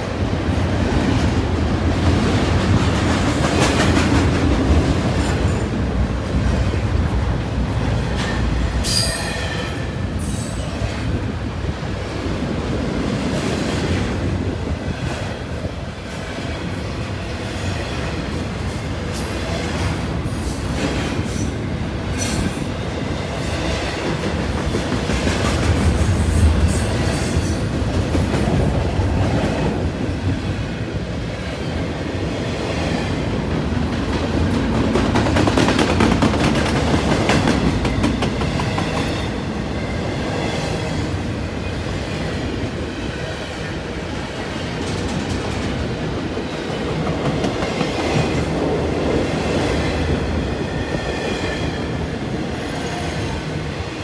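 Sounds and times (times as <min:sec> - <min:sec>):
clickety-clack over rail joints: 0:00.0 - 0:11.2, 0:12.6 - 0:30.7, 0:31.4 - 0:54.0
train wheels rumbling on rail: 0:00.0 - 0:54.0.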